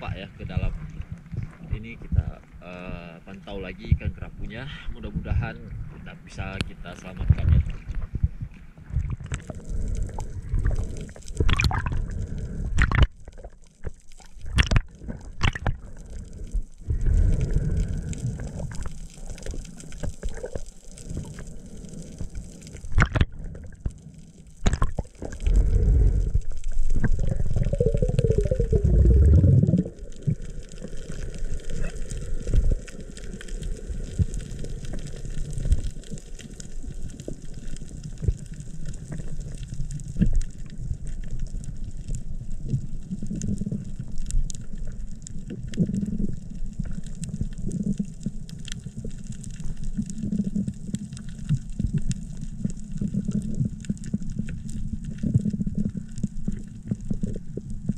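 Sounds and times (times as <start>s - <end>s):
low gurgling rush: 0.0s - 57.9s
muffled underwater sound: 0.0s - 57.9s
water sloshing and splashing: 8.9s - 12.2s, 12.8s - 21.5s, 22.2s - 24.0s, 24.6s - 26.0s.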